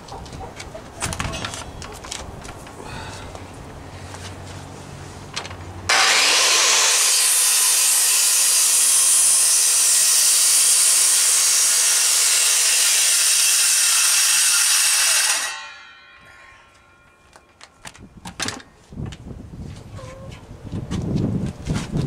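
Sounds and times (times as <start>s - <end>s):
circular saw cutting wood: 5.9s - 16.9s.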